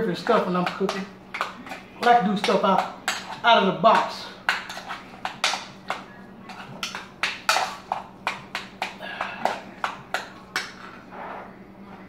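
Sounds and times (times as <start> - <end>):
utensil scraping metal saucepan: 1.6 - 5.6.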